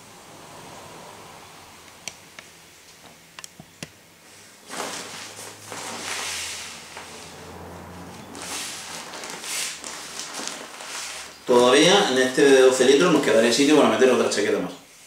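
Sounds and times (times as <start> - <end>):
nylon fabric rustling and crinkling: 4.2 - 13.6.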